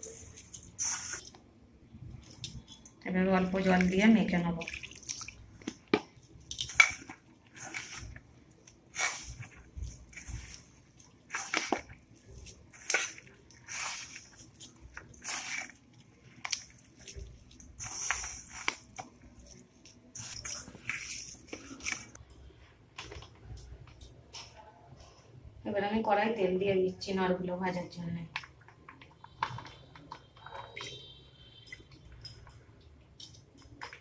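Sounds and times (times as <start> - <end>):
hand kneading moist mix: 0.0 - 25.4.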